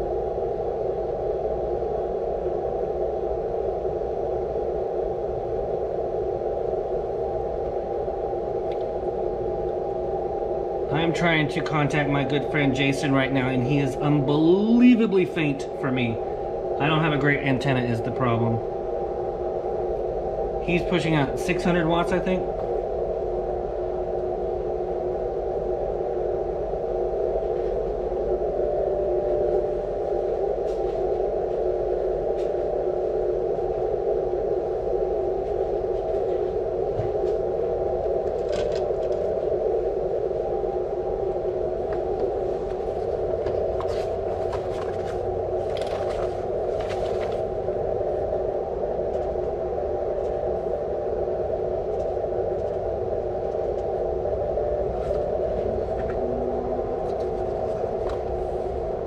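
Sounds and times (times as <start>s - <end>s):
radio receiver static: 54.6s - 58.6s.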